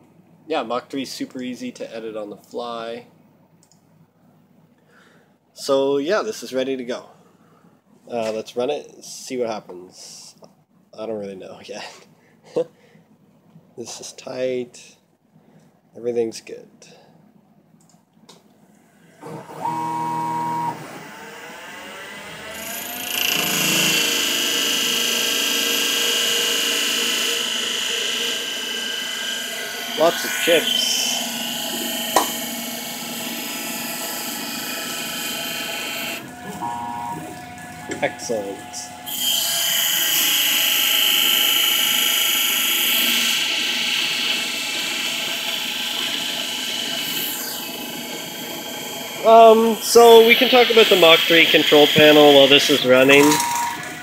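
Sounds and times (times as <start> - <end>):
lathe spindle motor whine: 19.2 - 54.0
lathe whirring rising in pitch: 19.2 - 54.0
lathe tool cutting metal bar: 21.0 - 54.0
tool cutting hiss and chips spraying: 49.3 - 53.5.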